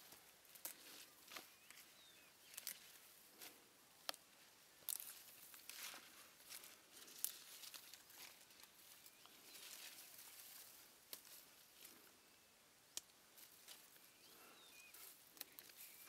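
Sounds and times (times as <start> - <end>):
leaves crinkling: 0.0 - 12.1, 13.3 - 16.0
vine stems snapping: 0.5 - 1.8, 2.5 - 2.8, 4.9 - 5.9, 11.1 - 11.4.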